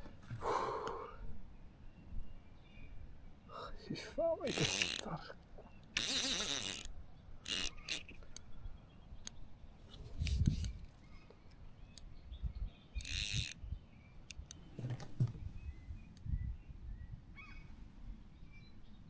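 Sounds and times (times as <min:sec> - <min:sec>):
fishing reel drag buzzing: 0:04.5 - 0:05.0, 0:06.0 - 0:08.2, 0:13.0 - 0:13.6
faint bird chirps: 0:11.0 - 0:17.8.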